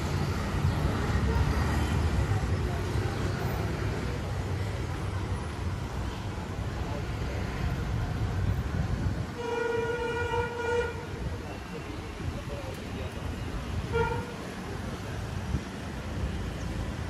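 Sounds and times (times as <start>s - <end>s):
street traffic rumble: 0.0s - 17.0s
vehicle horn: 9.4s - 11.1s, 13.8s - 14.4s.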